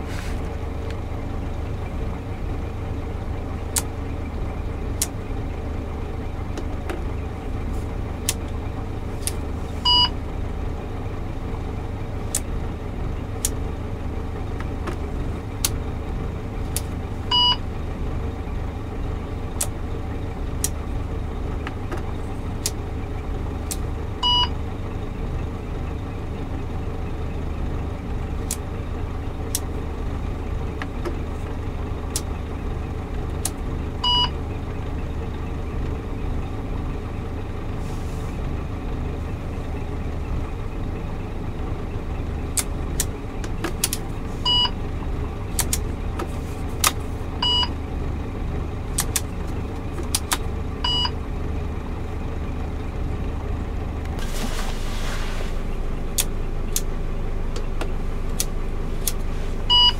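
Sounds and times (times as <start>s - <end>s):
diesel truck engine idling: 0.0s - 59.9s
sharp clicks: 42.6s - 44.1s, 45.5s - 45.9s, 48.9s - 49.3s, 50.0s - 50.4s, 56.2s - 56.9s.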